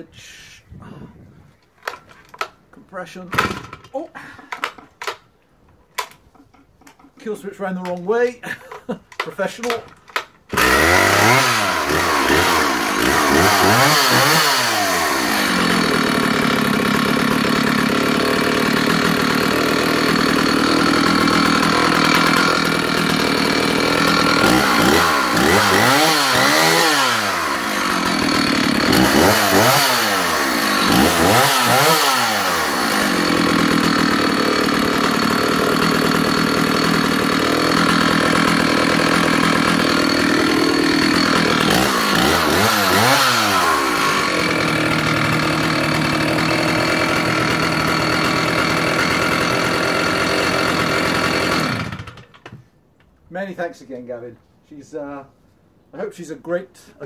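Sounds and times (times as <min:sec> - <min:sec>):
chainsaw idling and revving: 0:09.2 - 0:52.5.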